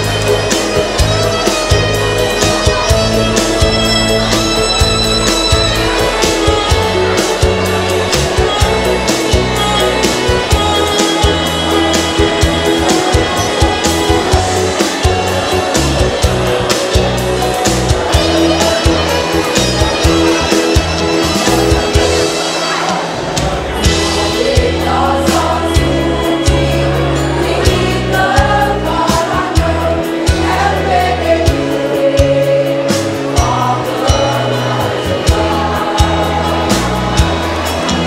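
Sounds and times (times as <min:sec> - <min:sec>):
instrumental march with bass: 0:00.0 - 0:38.0
steady drum beat: 0:00.0 - 0:38.0
women's choir singing: 0:22.6 - 0:38.0.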